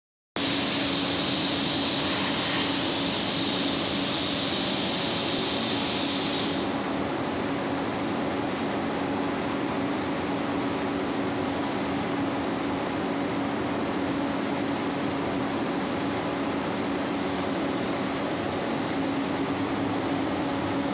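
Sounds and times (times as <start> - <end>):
spray gun hissing: 0.4 - 7.0.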